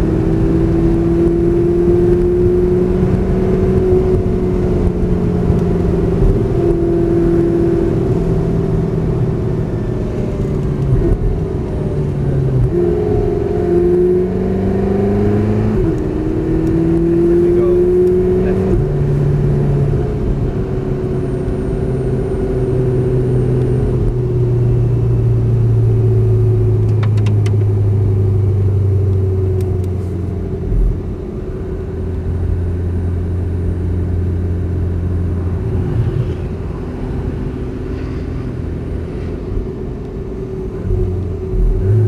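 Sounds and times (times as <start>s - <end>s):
car driving hum: 0.0s - 42.0s.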